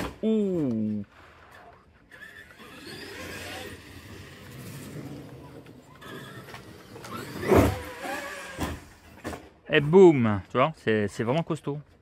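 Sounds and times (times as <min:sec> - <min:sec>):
rc truck motor whining: 0:01.4 - 0:09.2.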